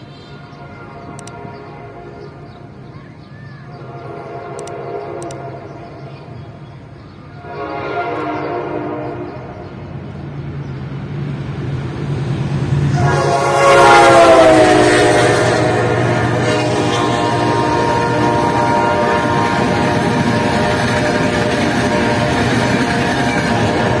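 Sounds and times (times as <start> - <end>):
train air horn blasts: 0.0 - 2.4, 3.8 - 5.9, 7.4 - 9.7, 12.9 - 24.0
diesel locomotive engine drone: 0.0 - 24.0.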